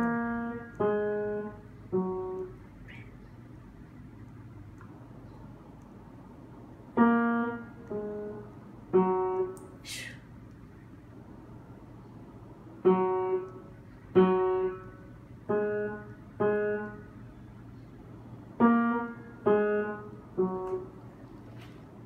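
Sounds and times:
slow piano notes: 0.0s - 4.0s, 6.8s - 9.7s, 12.0s - 21.4s.

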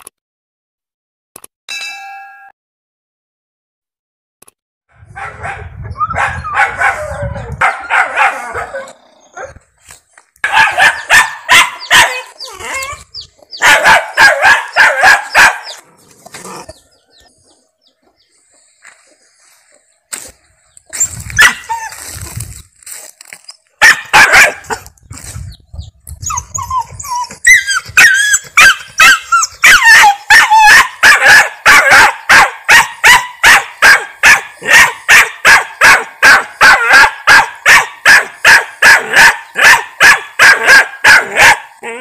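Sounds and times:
dog barking: 5.2s - 9.6s, 10.4s - 12.5s, 13.6s - 15.8s, 21.4s - 21.7s, 23.8s - 24.8s, 28.0s - 41.8s
dog yelping: 5.2s - 9.6s, 10.4s - 15.8s, 21.0s - 22.2s, 23.8s - 24.8s, 26.2s - 42.0s.

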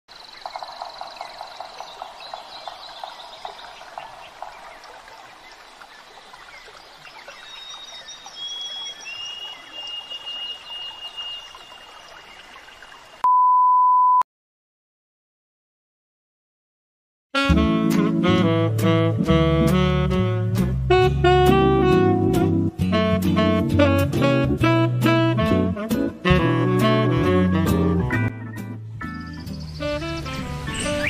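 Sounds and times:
high whistling calls: 7.0s - 12.9s, 29.0s - 31.0s
test-tone beep: 13.2s - 14.2s.

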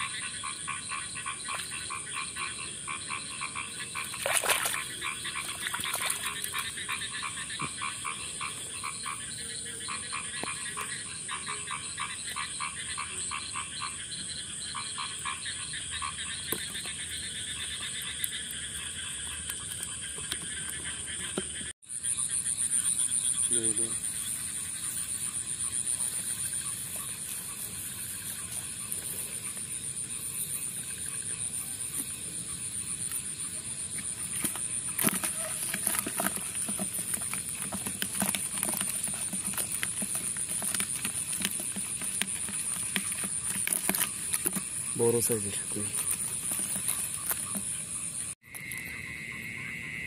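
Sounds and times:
frogs croaking: 0.0s - 50.0s
sharp clicks and rustles: 34.2s - 47.9s.

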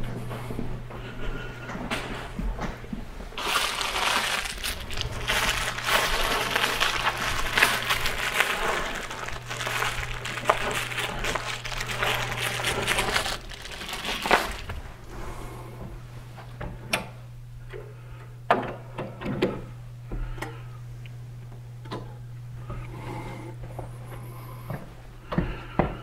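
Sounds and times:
bubble wrap crinkling: 3.4s - 15.4s.

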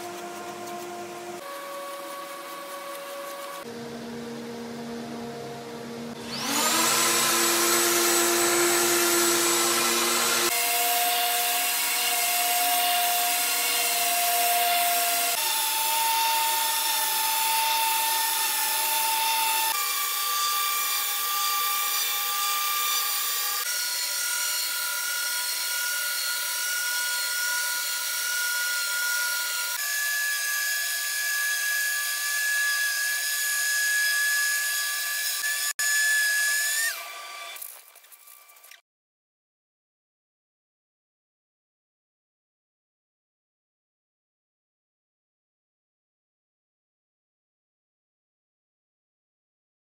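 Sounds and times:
orbital sander whining: 6.2s - 14.1s.

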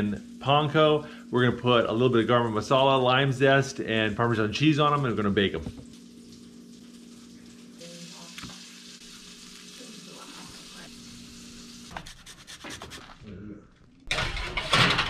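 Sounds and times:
lime zested on hand grater: 11.9s - 13.2s.

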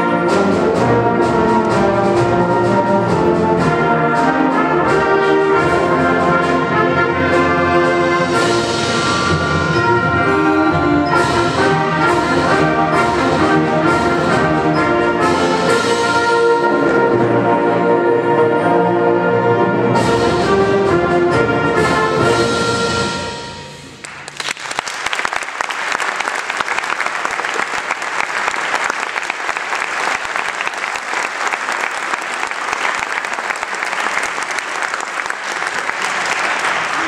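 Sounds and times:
concert band playing: 0.0s - 24.4s
audience applause: 24.0s - 37.0s.

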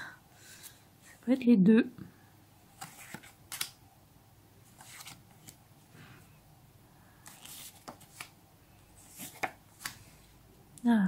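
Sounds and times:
paper rustles and flicks: 2.8s - 3.8s, 4.6s - 5.6s, 7.2s - 8.4s, 9.0s - 10.3s.

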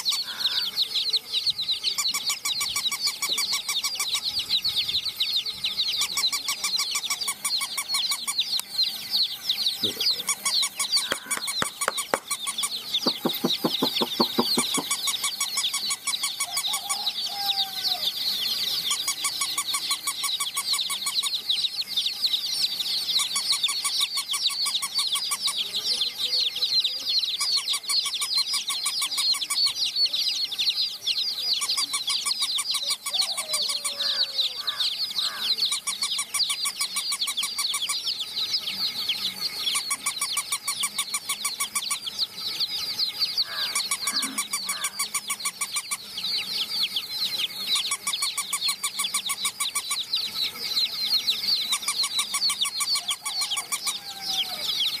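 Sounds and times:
baby chicks peeping: 0.0s - 55.0s
rapid ticks: 10.7s - 16.1s.

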